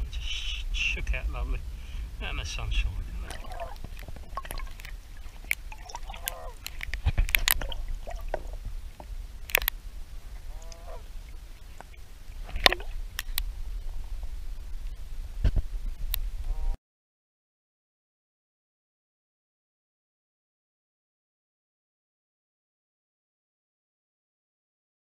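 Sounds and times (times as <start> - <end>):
low rumble: 0.0 - 16.8
ducks quacking: 3.2 - 4.0, 5.3 - 6.7, 10.4 - 11.1.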